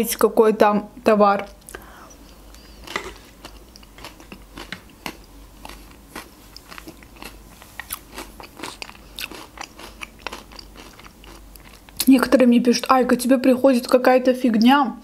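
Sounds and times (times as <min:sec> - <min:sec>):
wet mouth eating sounds: 0:01.4 - 0:12.1.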